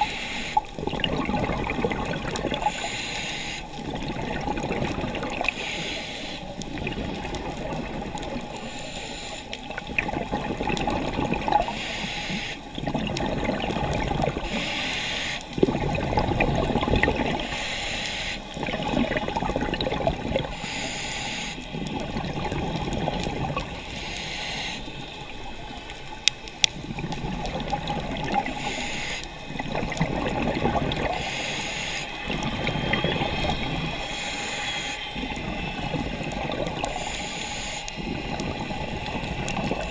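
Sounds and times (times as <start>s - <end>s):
regulator inhale hiss: 0.0s - 0.7s, 2.6s - 3.9s, 5.5s - 6.6s, 8.4s - 9.8s, 11.6s - 12.8s, 14.4s - 15.6s, 17.4s - 18.6s, 20.4s - 21.9s, 23.6s - 25.6s, 28.4s - 29.6s, 31.0s - 39.9s
exhaust bubbles gurgling: 0.0s - 8.8s, 9.5s - 14.8s, 15.4s - 17.7s, 18.4s - 20.6s, 21.6s - 39.9s.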